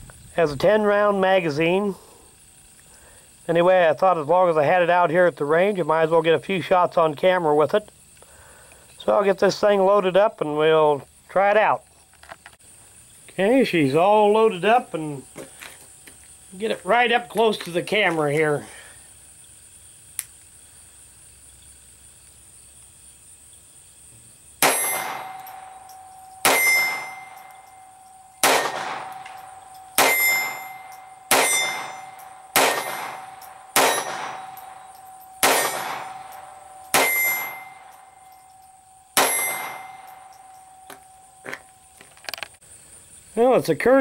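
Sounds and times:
pistol shots: 0:24.6 - 0:27.6, 0:28.4 - 0:38.1, 0:39.2 - 0:40.5
ringing tone: 0:24.7 - 0:28.4, 0:29.0 - 0:32.6, 0:33.3 - 0:42.1.

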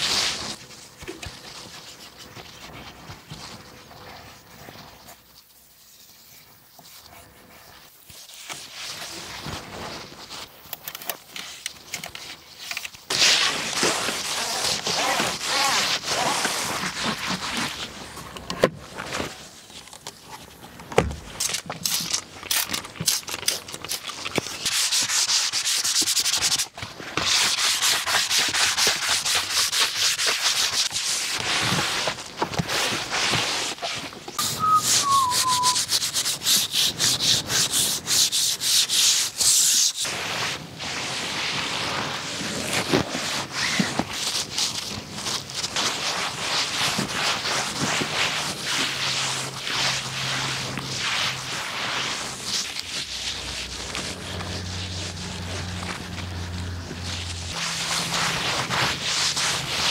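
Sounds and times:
hand scrubbing a surface: 0:13.1 - 0:18.4, 0:23.9 - 0:59.9.

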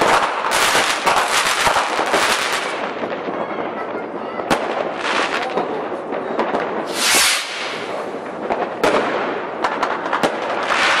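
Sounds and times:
fireworks bangs: 0:00.0 - 0:11.0
fireworks popping and crackling: 0:00.0 - 0:11.0
fireworks hissing rush: 0:06.6 - 0:11.0.

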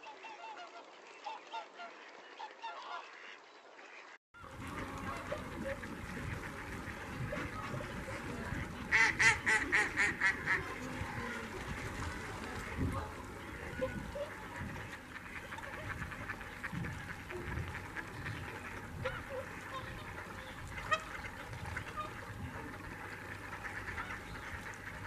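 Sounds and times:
waterfowl calling: 0:00.0 - 0:25.0
loud honking calls: 0:04.5 - 0:10.8.

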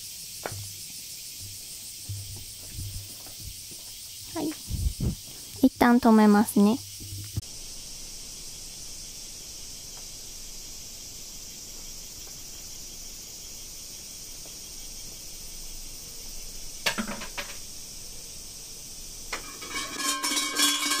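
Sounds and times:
high-pitched insect chorus: 0:00.0 - 0:21.0
sharp clattering knocks: 0:01.4 - 0:05.1, 0:16.8 - 0:17.7.

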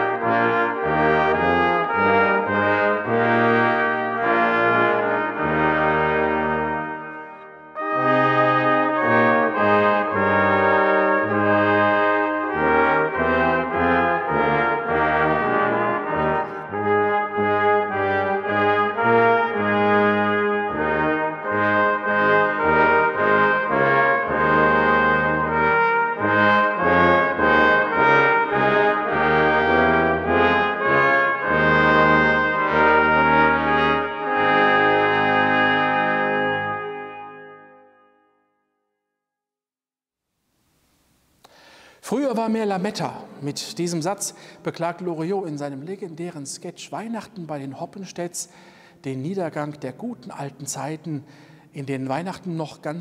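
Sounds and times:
brass quintet playing: 0:00.0 - 0:38.2.

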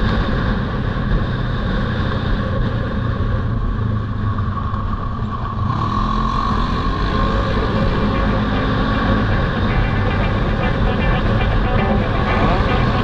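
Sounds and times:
atv engine running: 0:00.0 - 0:13.0.

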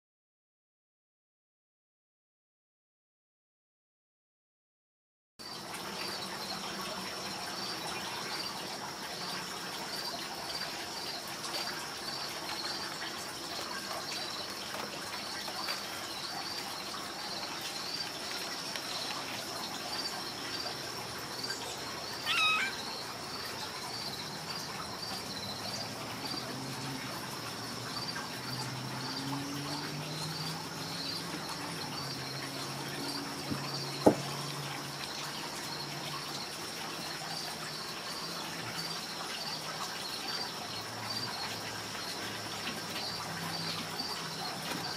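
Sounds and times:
insects chirping: 0:05.4 - 0:44.9
short call falling in pitch: 0:22.2 - 0:22.8.

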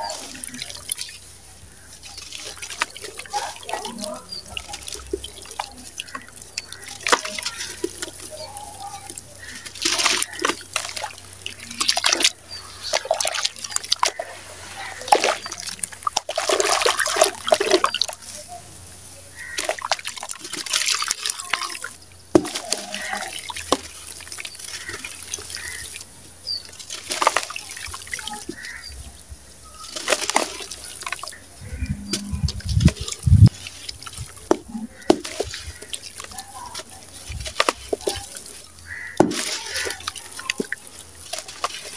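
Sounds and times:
sand splashing into water: 0:00.0 - 0:18.6, 0:19.3 - 0:41.9
dry cement crunching: 0:19.3 - 0:26.0, 0:29.7 - 0:41.9.

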